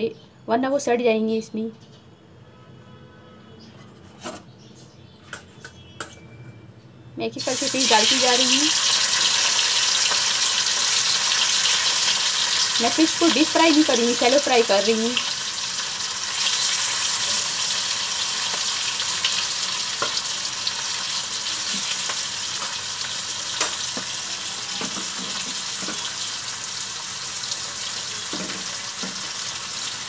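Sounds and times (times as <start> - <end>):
fish sizzling in hot oil: 7.4 - 30.0.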